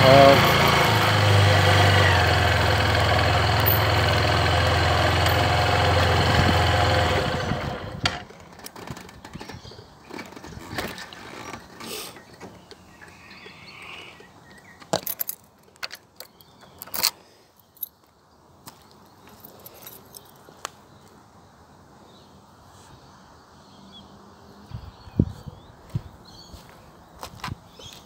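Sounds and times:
motorcycle engine idling: 0.0s - 8.3s.

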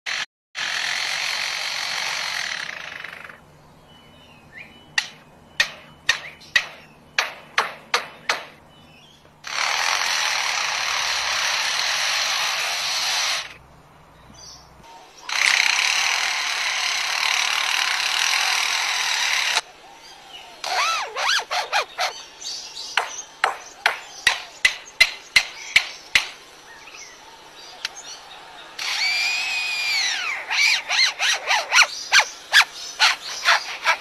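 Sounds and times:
bird mimicking power tool: 0.1s - 3.4s, 9.4s - 13.6s, 15.2s - 19.7s, 20.6s - 26.4s, 27.8s - 34.0s
bird mimicking hammer knocks: 5.0s - 8.6s, 22.9s - 26.4s.

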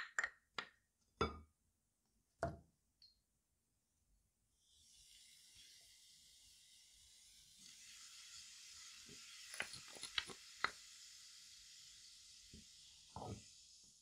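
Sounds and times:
faint fizzing hiss: 4.6s - 14.0s.

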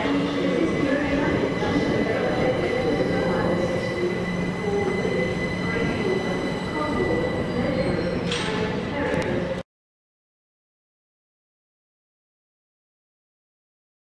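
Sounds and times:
train wheels squealing: 0.0s - 9.5s
freight train rumbling: 0.0s - 9.6s.

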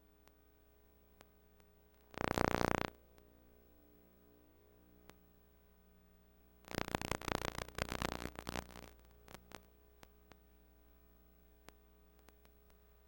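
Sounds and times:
crackling static: 0.0s - 0.5s, 1.1s - 3.4s, 4.9s - 5.3s, 6.6s - 13.0s
faint videotape hum: 0.0s - 13.0s.

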